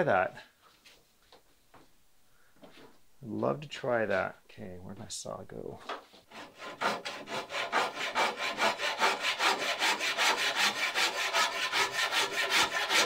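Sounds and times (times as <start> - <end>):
hand saw cutting wood: 6.3 - 13.0.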